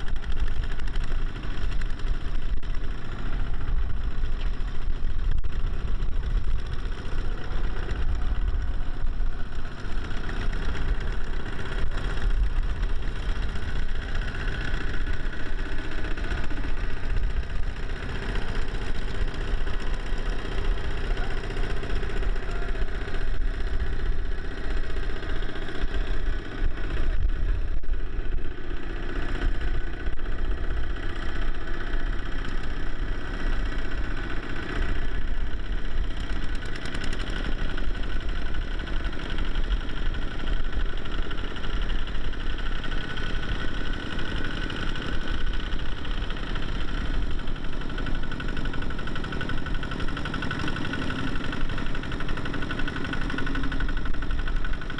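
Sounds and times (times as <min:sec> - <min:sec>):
diesel tractor engine running: 0:00.0 - 0:54.9.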